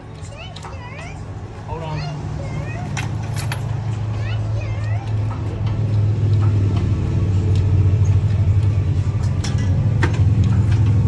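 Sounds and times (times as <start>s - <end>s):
low motor drone: 2.1s - 11.0s
sharp metallic clicks: 2.6s - 11.0s.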